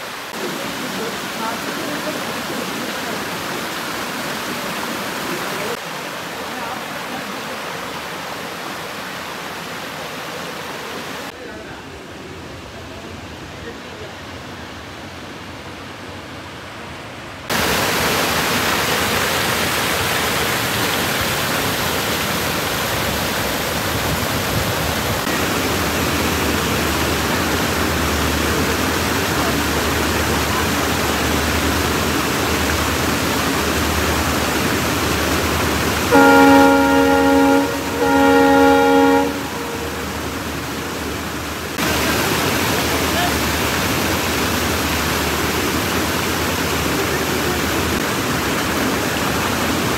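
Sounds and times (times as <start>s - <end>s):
loud steady rushing noise: 24.4s - 49.9s
train horn blasts: 36.0s - 40.8s.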